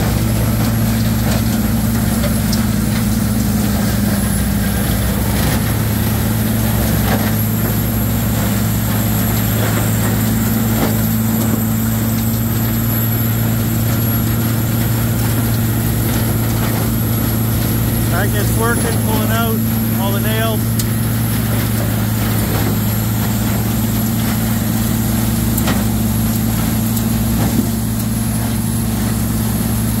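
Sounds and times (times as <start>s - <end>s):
wood grinder diesel engine droning: 0.0s - 30.0s.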